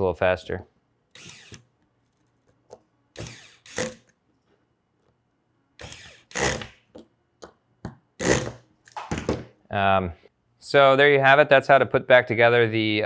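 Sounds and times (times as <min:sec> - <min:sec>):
electric screwdriver running: 0:01.1 - 0:01.6, 0:03.2 - 0:04.1, 0:05.8 - 0:06.7.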